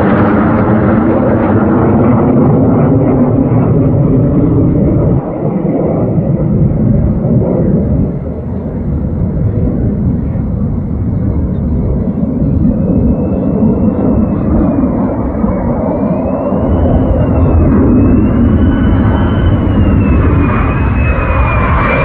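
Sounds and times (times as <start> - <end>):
fighter jet roar: 0.0 - 22.0
faint high whine: 10.2 - 22.0.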